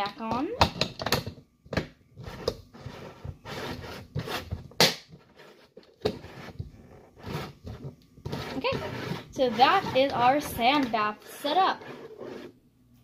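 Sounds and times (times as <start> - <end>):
plastic scraping against plastic: 2.2 - 12.6.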